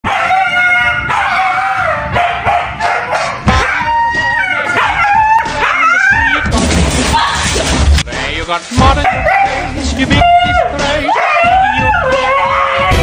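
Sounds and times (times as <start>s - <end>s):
dog howling and yowling: 0.1s - 6.4s, 10.2s - 13.0s.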